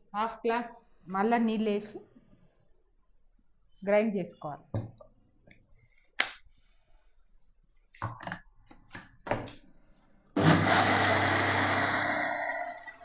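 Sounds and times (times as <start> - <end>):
mixer grinder whirring: 10.4 - 13.0.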